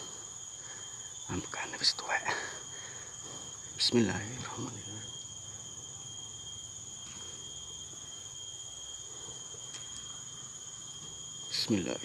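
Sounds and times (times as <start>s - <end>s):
faint low hum: 0.0s - 8.0s
steady high-pitched whine: 0.0s - 12.0s.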